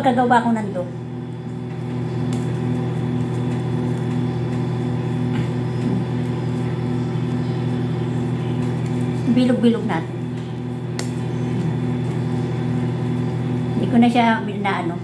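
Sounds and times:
electric motor hum: 0.0 - 15.0.

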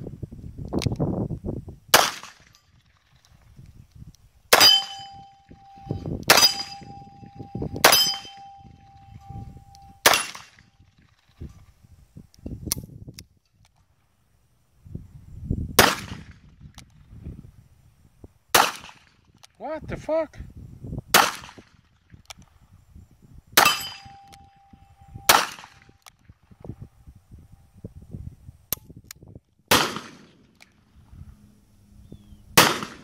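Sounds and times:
steel target ringing: 4.5 - 10.6, 23.6 - 25.8
revolver gunshots: 10.0 - 10.5, 25.2 - 25.8, 29.7 - 30.5, 32.6 - 33.0.

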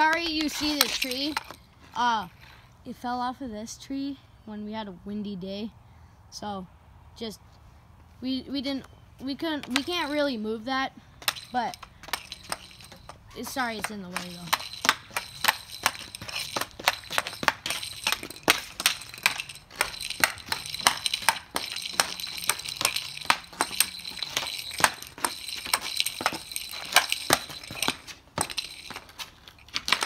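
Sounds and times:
hockey stick clacking puck: 0.0 - 1.6, 11.2 - 30.0
puck scraping on concrete: 0.0 - 2.8, 9.4 - 30.0.

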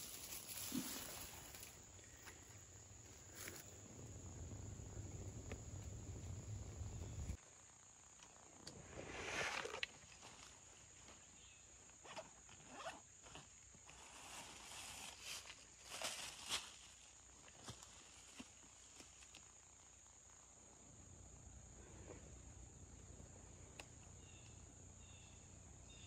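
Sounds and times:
rustling of clothing and leaves: 0.0 - 4.2, 8.8 - 19.8.

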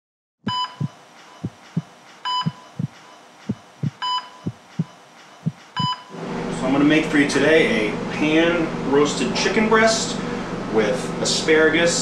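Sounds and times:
heartbeat thumps: 0.5 - 6.1
heart monitor beep: 0.5 - 6.2.

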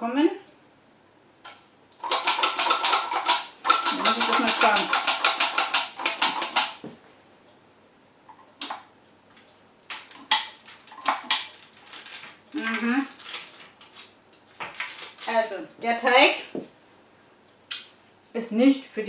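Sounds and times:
cookie press clicking: 2.0 - 6.8.

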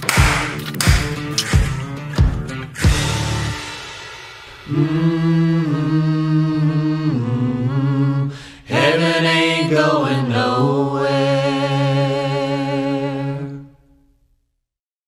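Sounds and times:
person singing long notes: 4.7 - 13.6.

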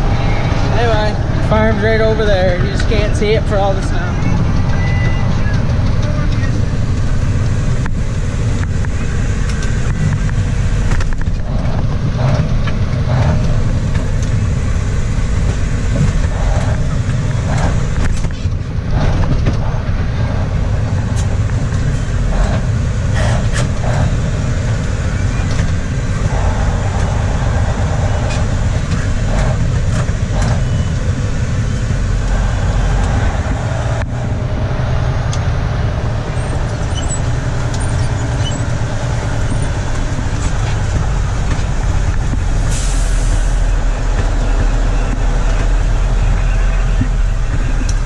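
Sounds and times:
truck engine and road rumble: 0.0 - 48.0.

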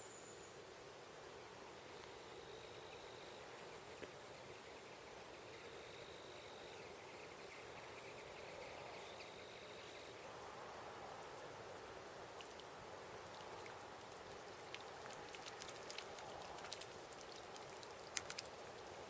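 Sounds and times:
faint stream rushing: 9.2 - 19.0.

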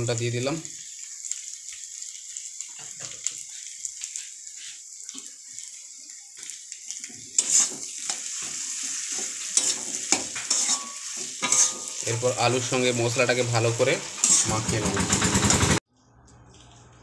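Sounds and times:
potatoes sizzling in oil: 0.0 - 15.6
metal spatula scraping pan: 7.4 - 12.6, 14.0 - 14.6.

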